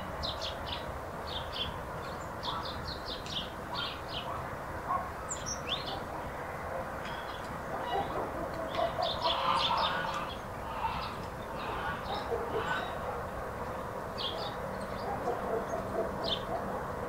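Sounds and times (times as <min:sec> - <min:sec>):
small birds chirping: 0:00.2 - 0:06.4, 0:07.0 - 0:17.0
hens clucking: 0:07.7 - 0:13.2.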